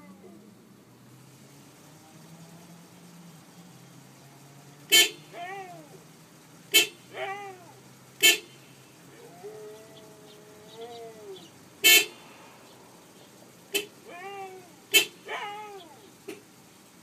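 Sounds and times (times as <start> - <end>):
car horn toots: 4.9 - 5.7, 6.7 - 7.4, 8.2 - 9.1, 11.8 - 12.4, 13.6 - 16.5
dog howling: 9.1 - 11.6, 14.0 - 16.1.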